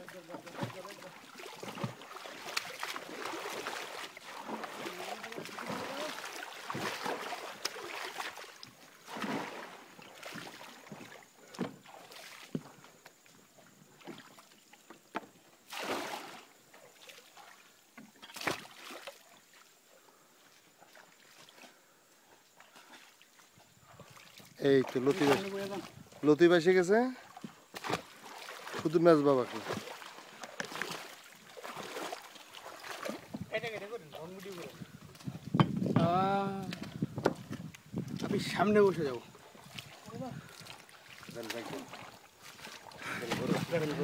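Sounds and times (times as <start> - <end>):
water sloshing around a boat: 0.0 - 44.0
water splashes: 0.0 - 44.0
boat knocks: 35.5 - 38.3.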